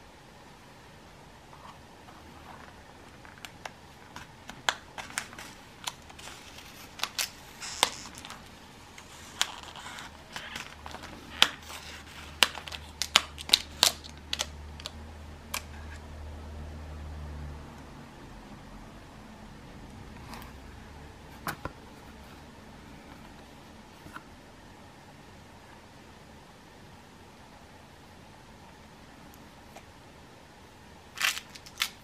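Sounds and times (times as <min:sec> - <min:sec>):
plastic rustle: 0:02.2 - 0:14.9
plastic wrap crackling: 0:02.5 - 0:15.0, 0:31.2 - 0:32.0.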